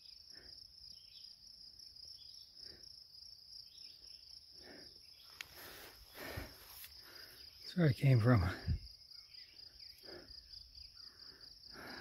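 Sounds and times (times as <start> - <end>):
high-pitched insect chorus: 0.0 - 12.0
soft rustles in grass: 5.3 - 7.3.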